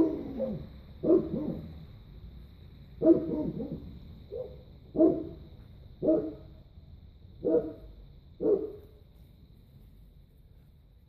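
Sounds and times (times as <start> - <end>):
puppy barking loudly: 0.0 - 1.7, 3.0 - 5.4, 6.0 - 6.4, 7.4 - 7.8, 8.4 - 8.8.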